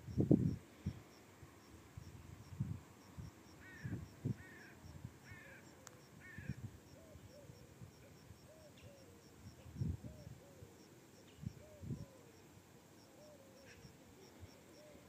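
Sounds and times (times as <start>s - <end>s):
fainter lower bird call: 3.5s - 15.0s.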